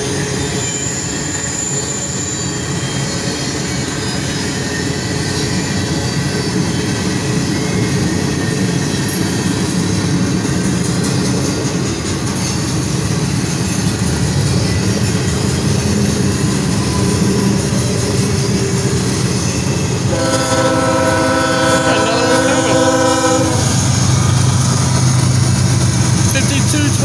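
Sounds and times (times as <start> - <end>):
freight cars rolling on rails: 0.0 - 27.0
locomotive engine drone: 0.0 - 27.0
diesel locomotive horn: 20.0 - 24.0.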